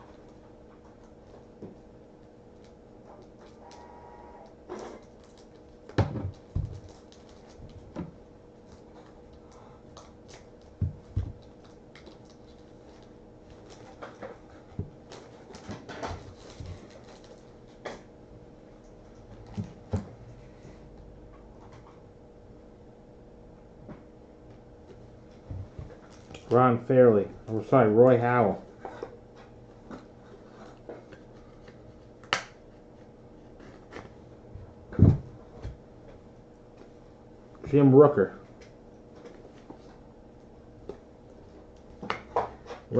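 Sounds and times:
plastic wrapper crinkling: 0:05.0 - 0:07.8, 0:11.4 - 0:14.2, 0:16.2 - 0:17.5
knock with low thud: 0:34.9 - 0:35.4.

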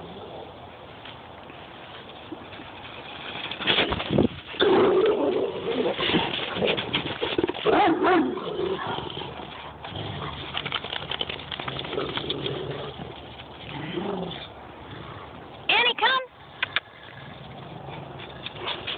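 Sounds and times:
dogs growling: 0:04.6 - 0:15.5.

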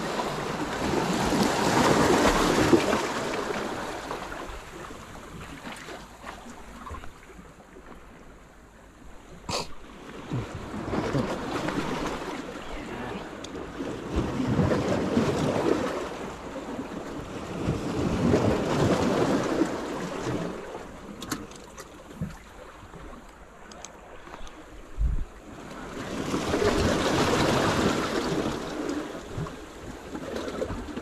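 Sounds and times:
sea waves washing against rocks: 0:00.0 - 0:06.9, 0:10.0 - 0:31.0.

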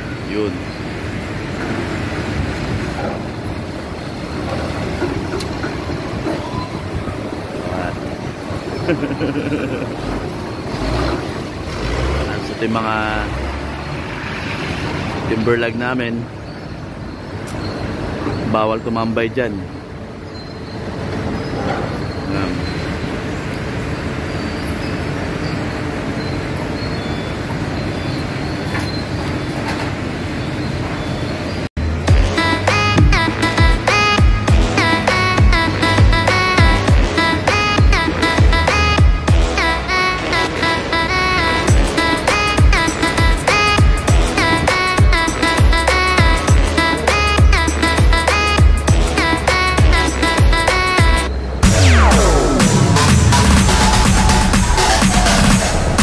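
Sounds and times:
sawmill machinery din: 0:00.0 - 0:15.8, 0:31.8 - 0:56.0
high squeals: 0:02.9 - 0:56.0
log debarker rumbling and grinding: 0:31.8 - 0:56.0.

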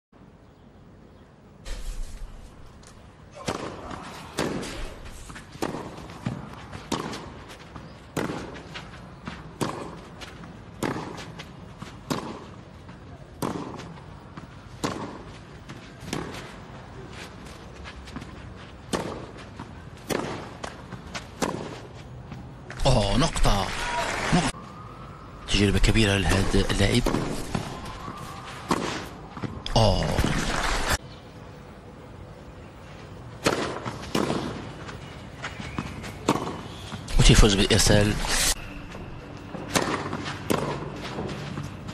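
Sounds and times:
tennis rackets hitting ball: 0:03.4 - 0:08.6, 0:09.6 - 0:10.0, 0:10.8 - 0:11.4, 0:12.0 - 0:12.5, 0:13.4 - 0:13.9, 0:14.8 - 0:15.4, 0:16.0 - 0:16.5, 0:18.9 - 0:19.4, 0:20.0 - 0:21.9, 0:28.6 - 0:29.5, 0:33.4 - 0:34.7, 0:35.7 - 0:36.6, 0:39.6 - 0:41.7.

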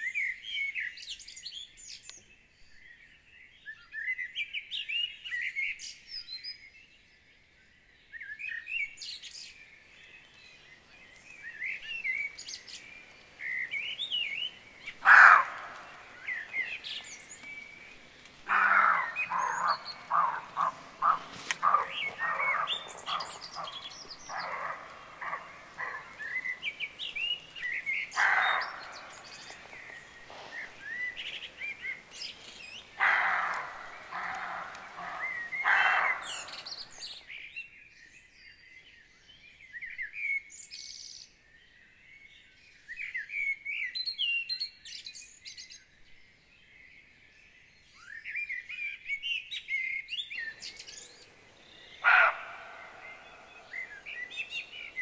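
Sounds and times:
songbirds singing: 0:00.0 - 0:55.0
deer barking: 0:15.0 - 0:16.7, 0:18.4 - 0:26.9, 0:27.6 - 0:30.8, 0:33.0 - 0:36.7, 0:51.8 - 0:55.0.

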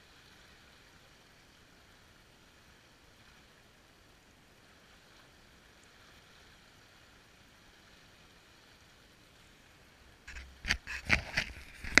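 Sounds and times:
small waves washing on shore: 0:00.0 - 0:12.0
camera handling knocks and scrapes: 0:10.3 - 0:12.0.

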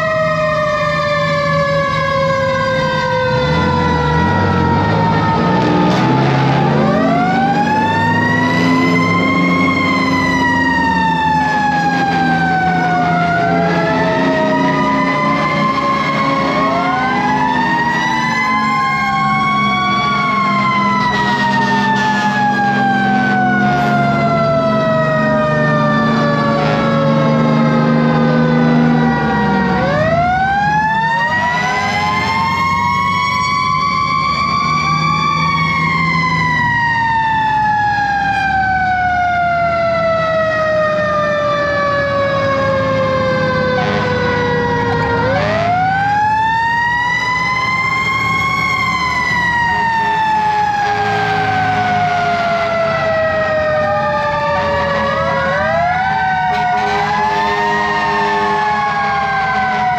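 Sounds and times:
fire engine sirens wailing: 0:00.0 - 0:59.9.

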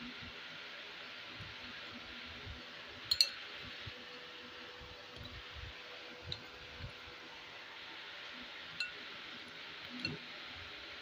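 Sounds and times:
faint hum: 0:00.0 - 0:11.0.

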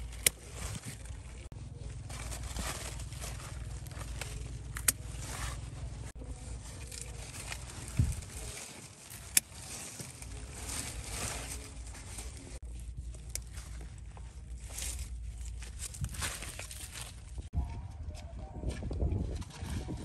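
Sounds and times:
scissors snipping stems: 0:00.0 - 0:01.0, 0:03.9 - 0:05.2, 0:09.1 - 0:10.3
leaves rustling: 0:00.0 - 0:17.5
low steady rumble: 0:00.0 - 0:19.9.

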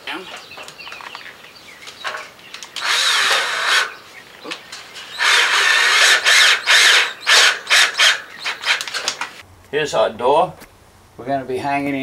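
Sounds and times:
cordless drill driving a screw: 0:02.7 - 0:04.0, 0:05.0 - 0:09.2.

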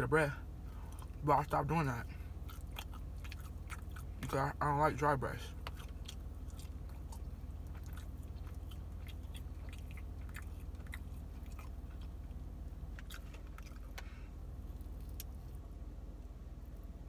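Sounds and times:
steady low hum: 0:00.0 - 0:17.0
person chewing food: 0:00.7 - 0:01.2, 0:02.1 - 0:04.4, 0:05.5 - 0:15.7.

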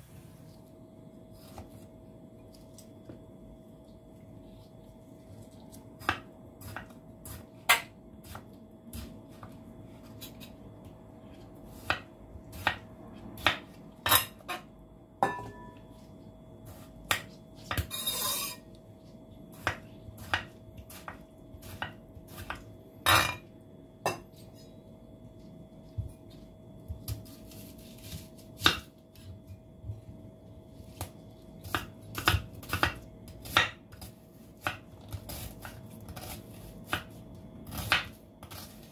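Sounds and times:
rustling scrape: 0:00.0 - 0:00.6.

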